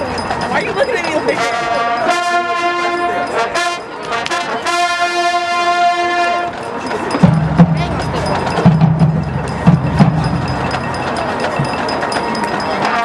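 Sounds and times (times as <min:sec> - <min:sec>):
brass section sustained note: 0:01.5 - 0:06.6.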